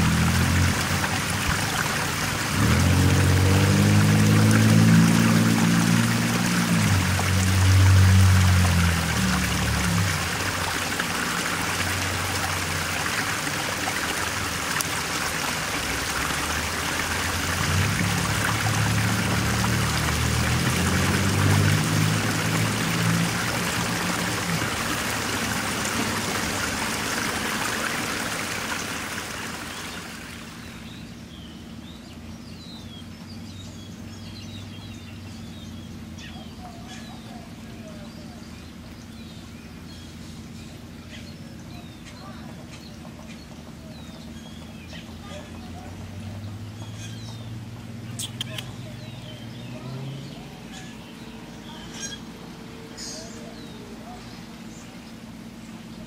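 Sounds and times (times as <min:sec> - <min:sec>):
water trickling: 0:00.0 - 0:36.0
birds chirping: 0:00.0 - 0:56.0.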